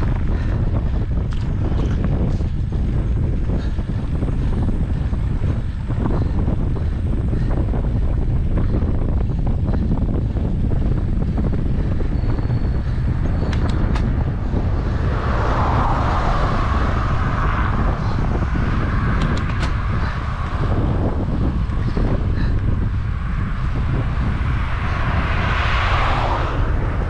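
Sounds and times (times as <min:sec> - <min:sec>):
low road rumble: 0:00.0 - 0:27.0
wind on microphone: 0:00.0 - 0:27.0
sharp clicks: 0:13.4 - 0:14.1, 0:19.2 - 0:19.8.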